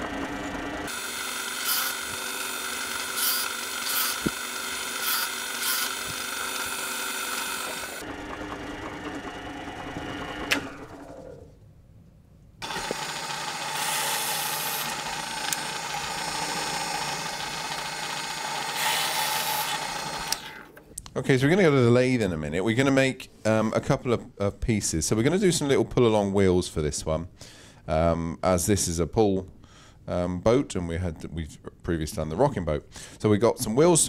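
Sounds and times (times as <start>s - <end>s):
pillar drill motor hum: 0.0s - 11.5s, 12.6s - 20.8s
drill bit cutting into wood: 0.4s - 8.0s, 12.6s - 20.7s.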